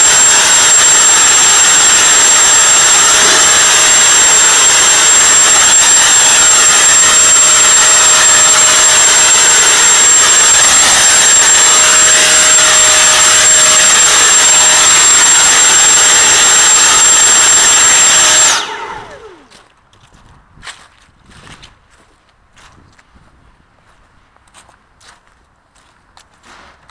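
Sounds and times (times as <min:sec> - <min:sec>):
leaf blower running: 0:00.0 - 0:19.6
whine spinning down: 0:00.0 - 0:19.6.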